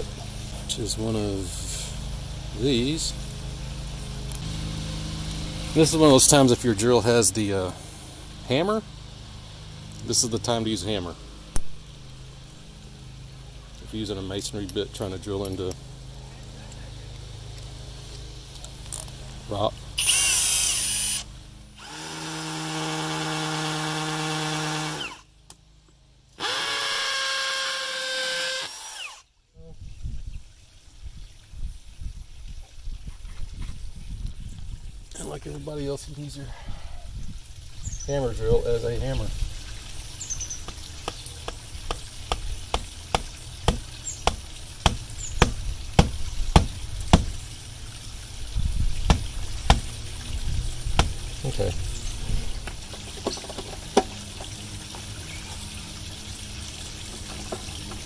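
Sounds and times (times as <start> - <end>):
hammer drill drilling into stone: 20.0 - 25.2, 26.4 - 29.3.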